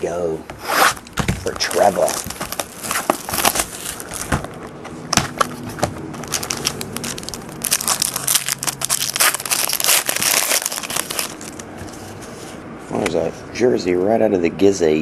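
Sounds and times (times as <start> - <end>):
plastic wrapper crinkling and tearing: 0.9 - 11.7.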